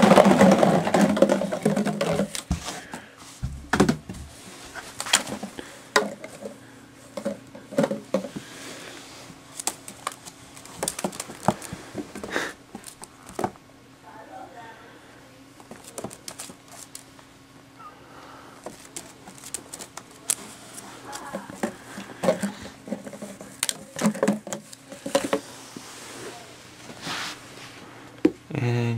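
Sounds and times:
plastic bottles knocking: 0:00.0 - 0:04.4, 0:05.3 - 0:06.6, 0:07.2 - 0:08.5, 0:21.2 - 0:25.4
close handling rustling: 0:18.6 - 0:27.8.

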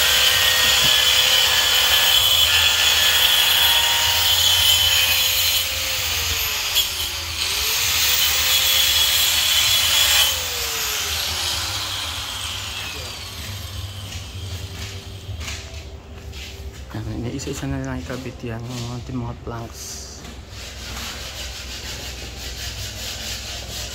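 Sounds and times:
power tool whining: 0:00.0 - 0:15.3.

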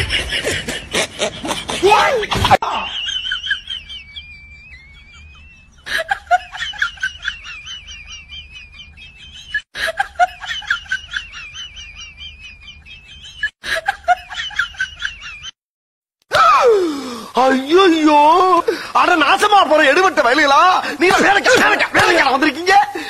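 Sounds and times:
high-pitched chirping: 0:02.8 - 0:09.6.

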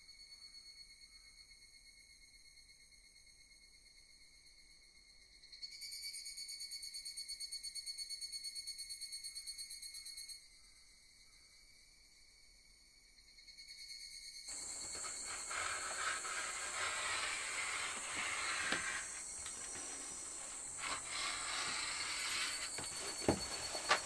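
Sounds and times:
cloth rustling: 0:14.5 - 0:24.0
rotary cutter rolling through fabric: 0:14.5 - 0:24.0
steady high hiss: 0:14.5 - 0:24.0.

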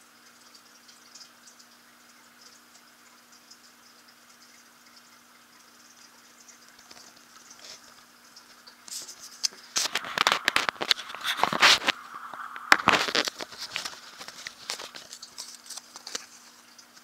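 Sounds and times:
faint steady hum: 0:00.0 - 0:17.0
handling noise scraping and rustling: 0:08.9 - 0:16.7.

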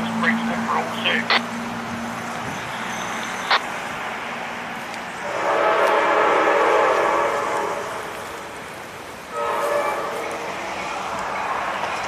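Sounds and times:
locomotive air horn blast: 0:05.2 - 0:08.3, 0:09.3 - 0:10.3.

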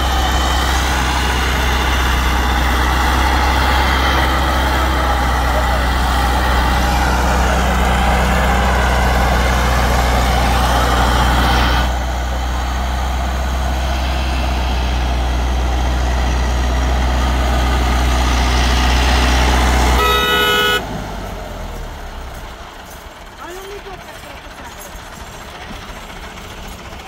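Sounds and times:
tractor diesel engine under load: 0:00.0 - 0:27.0
horn: 0:20.0 - 0:20.8.

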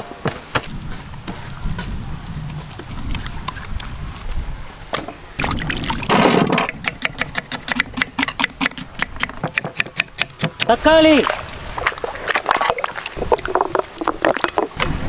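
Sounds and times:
water splashing over vegetables: 0:05.4 - 0:09.3, 0:10.2 - 0:15.0
knife chopping on wooden board: 0:06.8 - 0:10.8
hands squelching in wet paste: 0:10.6 - 0:14.8.

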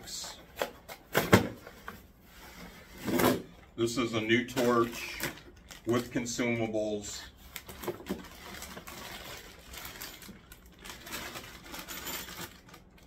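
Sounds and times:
plastic wrapping crinkling: 0:04.4 - 0:06.7, 0:07.4 - 0:13.0.

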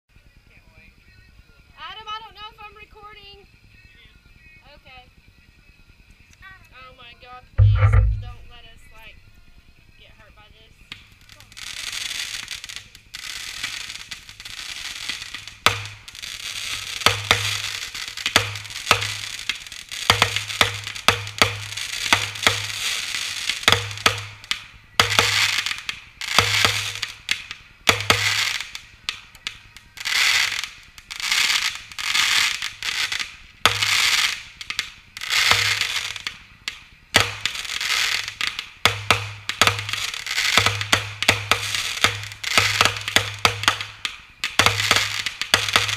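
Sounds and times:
fireworks pops and crackles: 0:01.0 - 0:45.9
fireworks launching whooshes: 0:10.8 - 0:29.4.

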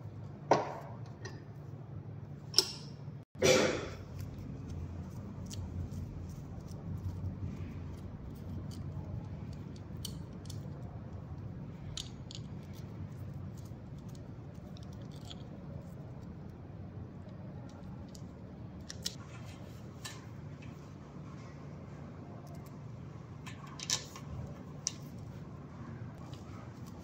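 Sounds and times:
steady low hum: 0:00.0 - 0:27.0
light clicks of bike parts: 0:17.2 - 0:19.2, 0:23.4 - 0:25.2.

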